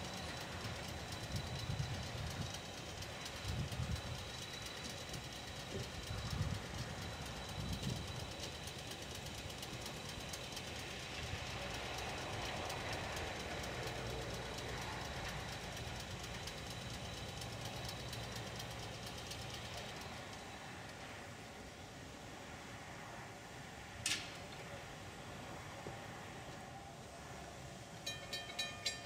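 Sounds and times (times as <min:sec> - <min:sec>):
fast even ticking: 0:00.0 - 0:20.4
faint high whine: 0:00.0 - 0:29.0.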